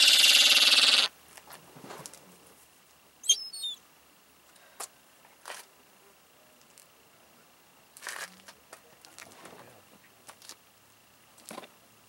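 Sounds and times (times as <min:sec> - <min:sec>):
gulls calling: 0:00.0 - 0:01.1.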